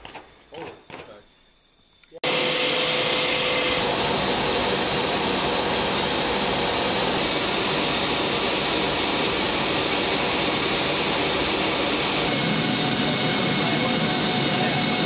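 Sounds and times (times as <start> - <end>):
steady high whine: 1.4 - 15.0
aircraft engines rushing: 3.1 - 15.0.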